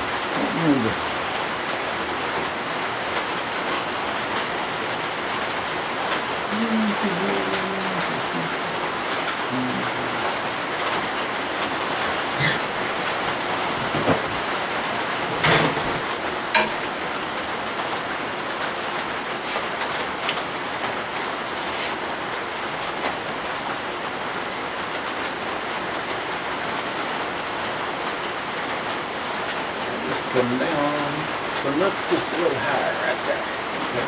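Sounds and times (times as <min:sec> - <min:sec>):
tools knocking on metal table: 0:13.8 - 0:14.3, 0:16.6 - 0:16.8.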